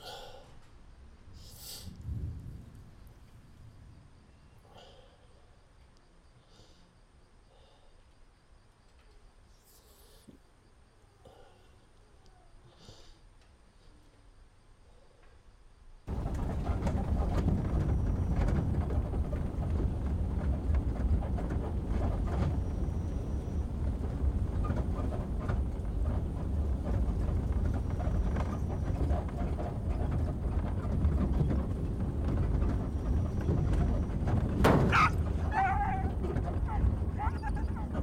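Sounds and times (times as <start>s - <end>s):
knocks and rattles from truck bed: 16.1s - 38.0s
truck engine and tyres rumbling: 16.1s - 38.0s.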